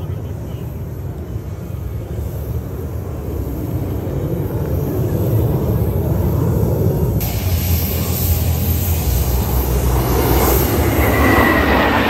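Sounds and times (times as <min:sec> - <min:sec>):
jet engines flying past: 0:00.0 - 0:12.0.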